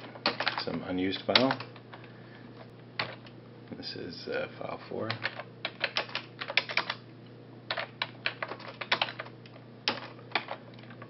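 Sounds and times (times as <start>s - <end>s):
computer keyboard typing: 0.0s - 1.7s, 5.1s - 7.0s, 7.7s - 11.0s.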